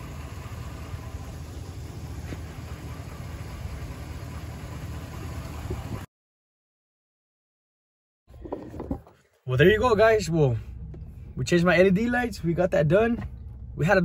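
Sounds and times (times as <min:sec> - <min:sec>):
pickup truck engine idling: 0:00.0 - 0:06.0.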